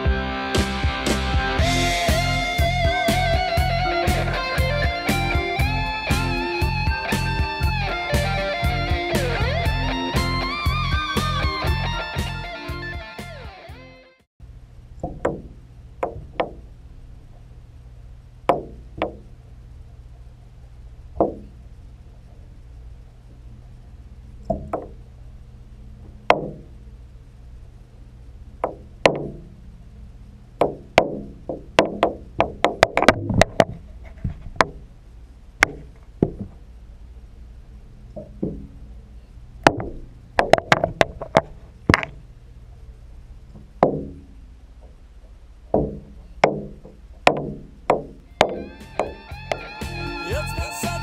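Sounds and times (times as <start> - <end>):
steady low hum: 0.0 - 51.0
underwater knocks and taps: 15.0 - 16.6, 18.5 - 19.3, 21.2 - 21.5, 45.7 - 49.6.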